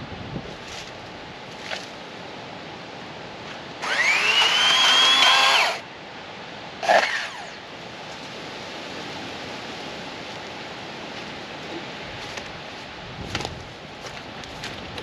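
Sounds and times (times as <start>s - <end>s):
electric chainsaw motor whining: 3.8s - 5.8s, 6.8s - 7.6s.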